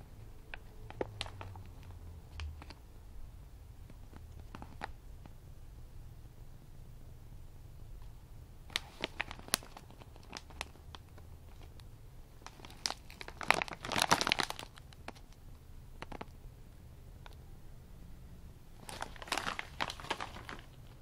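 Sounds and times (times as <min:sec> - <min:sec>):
plastic snack bag crinkling: 0:00.5 - 0:02.8, 0:08.7 - 0:11.8, 0:12.4 - 0:15.4, 0:16.0 - 0:16.3, 0:18.8 - 0:21.0.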